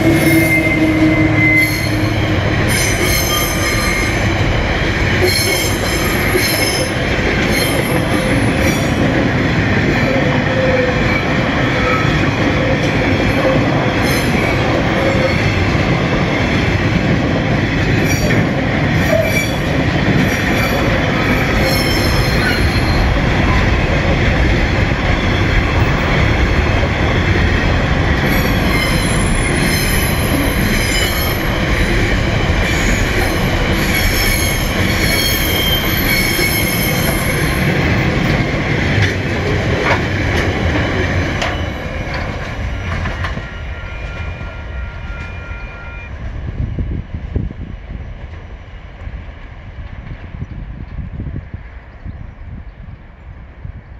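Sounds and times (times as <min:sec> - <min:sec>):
metallic wheel squeal: 0:00.0 - 0:04.2, 0:20.6 - 0:23.1, 0:32.8 - 0:37.6, 0:42.8 - 0:46.1
train wheels rumbling on rails: 0:00.0 - 0:53.9.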